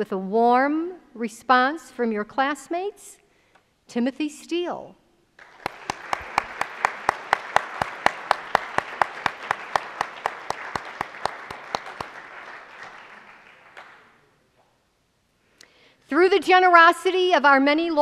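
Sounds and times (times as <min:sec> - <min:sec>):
audience applauding: 0:05.4 - 0:14.3
hands clapping close by: 0:05.4 - 0:14.7.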